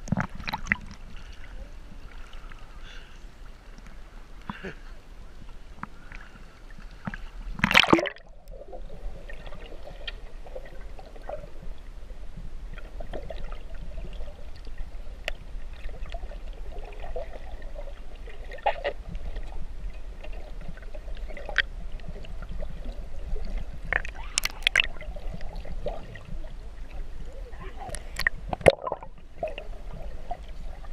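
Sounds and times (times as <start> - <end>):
muffled underwater rumble: 0.0 - 30.9
swimmers splashing and bubbling: 5.9 - 11.6, 20.1 - 30.9
splash into water: 7.6 - 8.2
sharp tick underwater: 23.9 - 25.5, 27.9 - 29.1.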